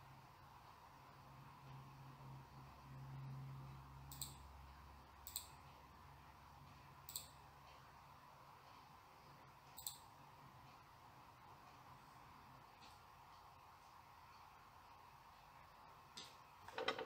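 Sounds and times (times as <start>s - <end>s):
computer mouse clicks: 4.1s - 4.4s, 5.2s - 5.6s, 7.0s - 7.4s, 9.8s - 10.1s.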